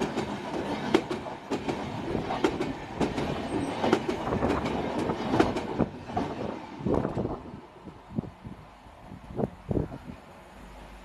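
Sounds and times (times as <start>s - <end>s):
train wheels clacking over rail joints: 0.0s - 7.4s
train rumble: 0.0s - 11.0s.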